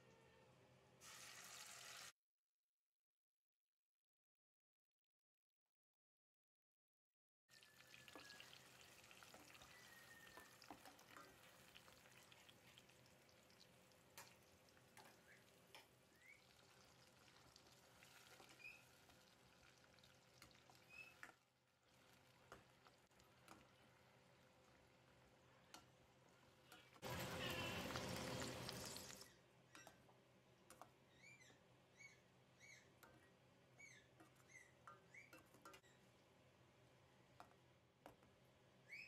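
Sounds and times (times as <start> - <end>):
paste frying faintly in oil: 7.5 - 31.0.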